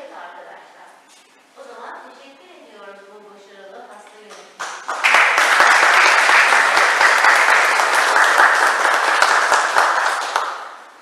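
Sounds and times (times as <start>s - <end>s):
crowd applauding: 4.6s - 10.9s.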